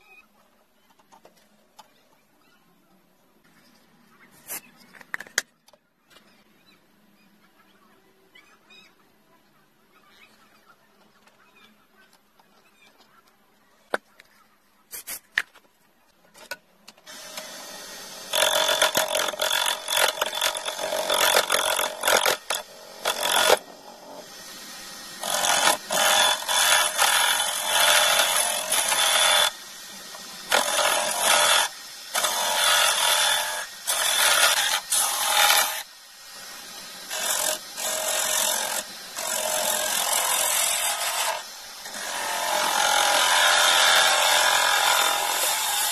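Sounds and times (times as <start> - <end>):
turning tool scraping wood: 17.1 - 24.4, 25.0 - 35.8
wood lathe running: 17.1 - 45.9.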